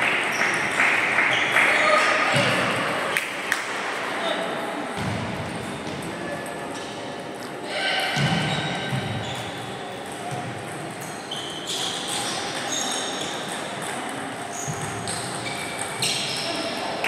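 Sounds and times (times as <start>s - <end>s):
table tennis ball clicks and pings: 10.0s - 17.0s.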